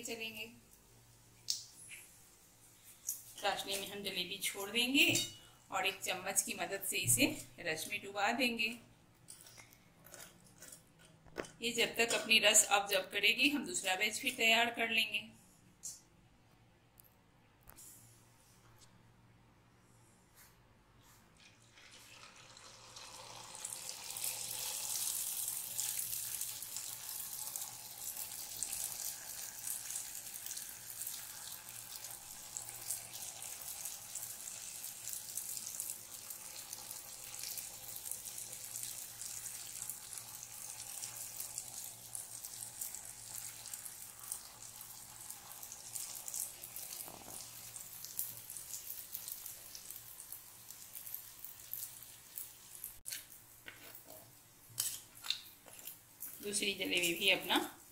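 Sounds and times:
batter sizzling in hot oil: 21.7s - 53.3s.

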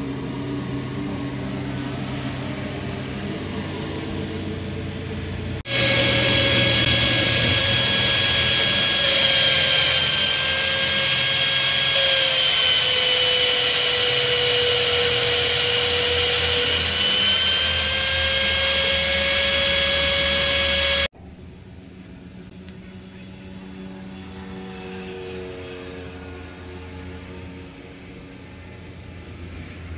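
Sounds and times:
drill press whining: 5.7s - 21.1s.

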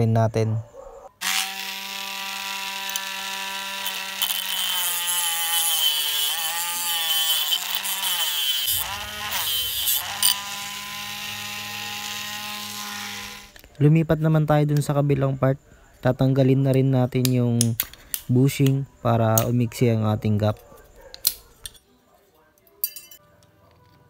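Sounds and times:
mini grinder whining: 1.2s - 13.6s.

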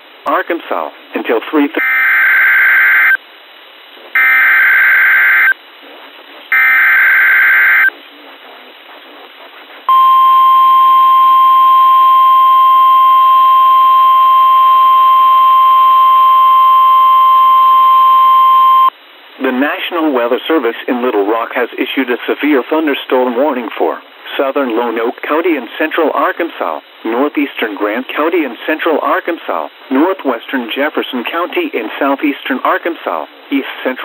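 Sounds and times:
steady warning alarm tone: 1.8s - 3.2s, 4.2s - 5.6s, 6.5s - 7.9s, 9.9s - 18.9s.

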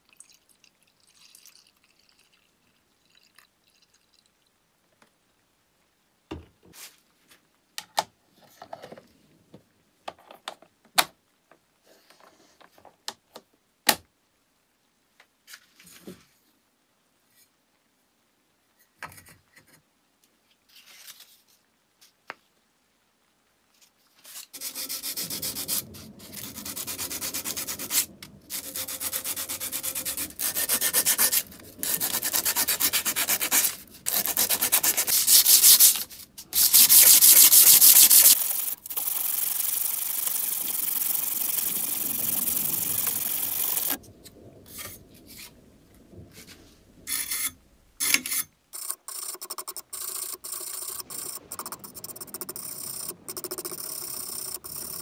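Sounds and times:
sandpaper rubbing on brass: 24.6s - 25.8s, 26.4s - 38.7s.

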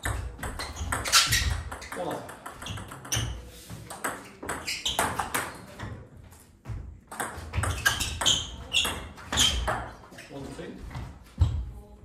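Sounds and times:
table tennis ball rally: 0.0s - 6.0s, 7.1s - 10.0s.

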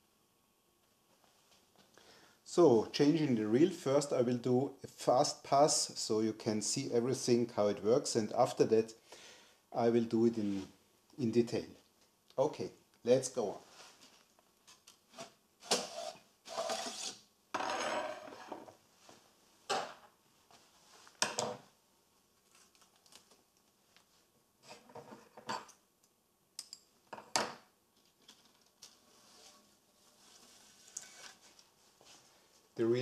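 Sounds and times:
rubbing and rustling: 28.0s - 32.5s.

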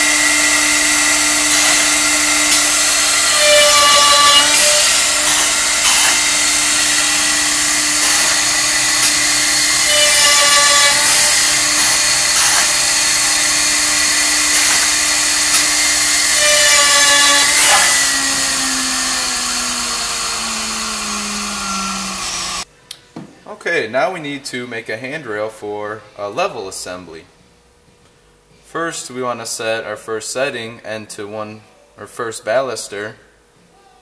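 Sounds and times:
drilling machine whining: 0.0s - 22.7s.

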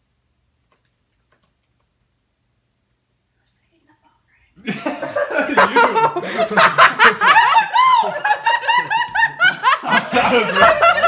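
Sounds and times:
people laughing hard: 4.6s - 11.0s.

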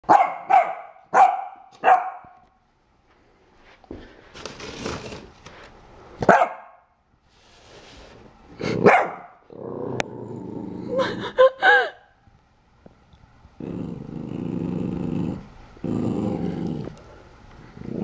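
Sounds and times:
puppy barking sharply: 0.0s - 2.4s, 6.2s - 6.9s, 8.9s - 9.4s
puppy growling: 8.6s - 11.4s, 13.6s - 18.0s.

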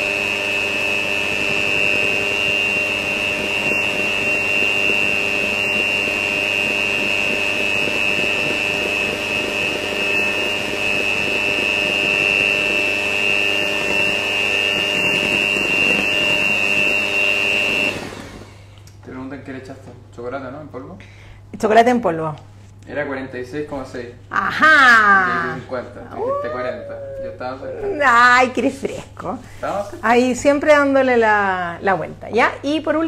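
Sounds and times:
electric hand mixer whining: 0.0s - 18.7s.

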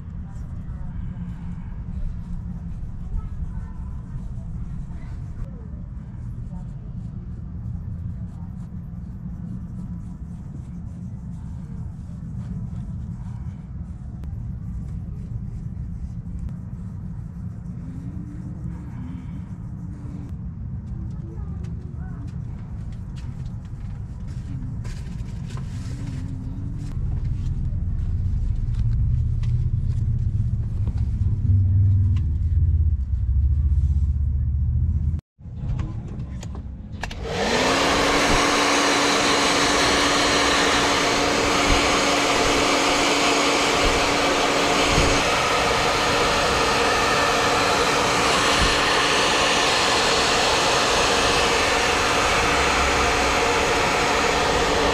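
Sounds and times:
low rumble: 0.0s - 54.9s
hot-air blower whining: 37.0s - 54.9s
rush of air: 37.1s - 54.9s.

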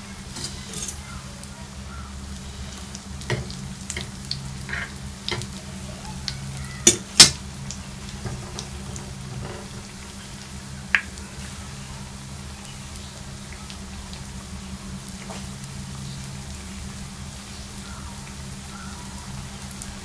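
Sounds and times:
dough sizzling in hot oil: 0.0s - 20.0s
fork knocking against pan: 3.3s - 4.0s, 6.9s - 7.4s.

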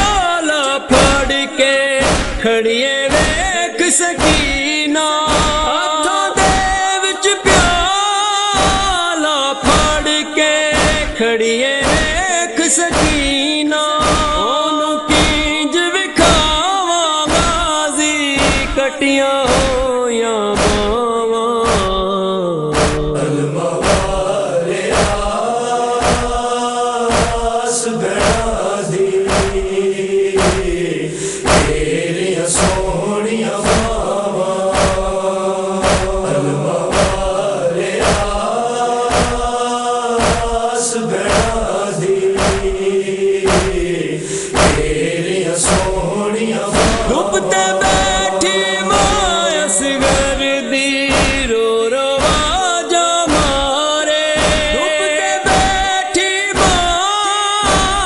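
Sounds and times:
steady drum beat: 0.0s - 0.2s, 0.9s - 1.4s, 2.0s - 2.5s, 3.1s - 3.6s, 4.2s - 4.7s, 5.3s - 5.8s, 6.4s - 6.8s, 7.5s - 8.0s, 8.6s - 9.0s, 9.6s - 10.1s, 10.7s - 11.2s, 11.8s - 13.4s, 14.0s - 14.5s, 15.1s - 15.6s, 16.2s - 16.7s, 17.3s - 17.8s, 18.4s - 18.8s, 19.5s - 20.0s, 20.6s - 22.1s, 22.8s - 23.2s, 23.8s - 25.4s, 26.0s - 26.5s, 27.1s - 27.6s, 28.2s - 33.0s, 33.6s - 35.2s, 35.8s - 38.5s, 39.1s - 39.6s, 40.2s - 40.7s, 41.3s - 44.0s, 44.6s - 50.5s, 51.1s - 51.6s, 52.2s - 52.6s, 53.3s - 53.8s, 54.4s - 56.0s, 56.6s - 57.0s, 57.6s - 58.0s
male chorus chanting: 0.0s - 58.0s.

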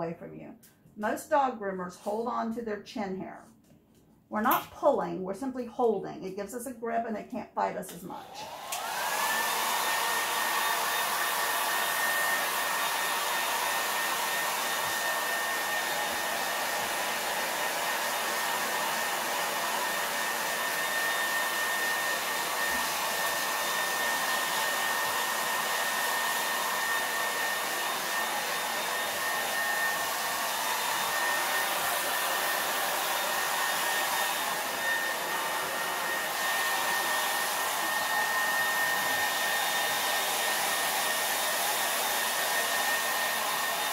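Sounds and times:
handheld dryer blowing: 7.9s - 43.9s.

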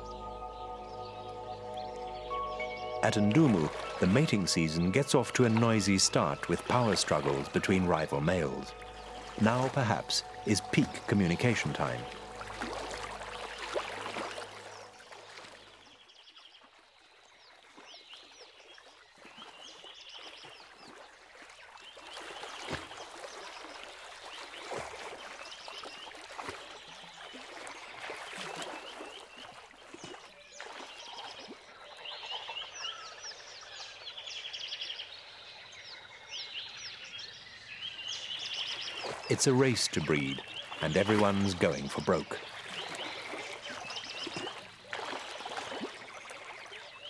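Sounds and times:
frogs chirping: 0.0s - 15.6s, 34.8s - 47.0s
splashes in water: 3.1s - 16.0s, 16.6s - 33.3s, 38.7s - 47.0s.

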